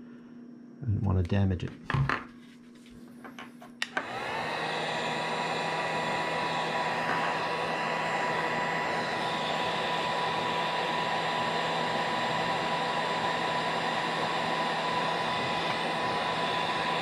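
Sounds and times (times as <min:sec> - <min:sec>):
heat gun blowing air: 0:03.9 - 0:17.0.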